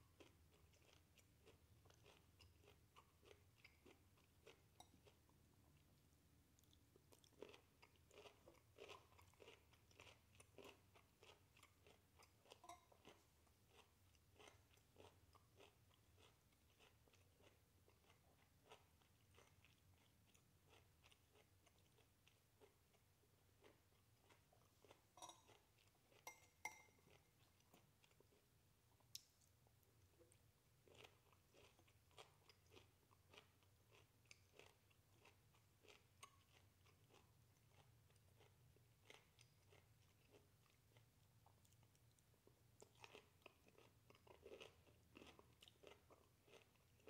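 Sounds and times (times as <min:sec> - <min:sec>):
person chewing crunchy food: 0:00.1 - 0:47.0
fork clicking on ceramic bowl: 0:25.2 - 0:25.5, 0:26.2 - 0:26.9.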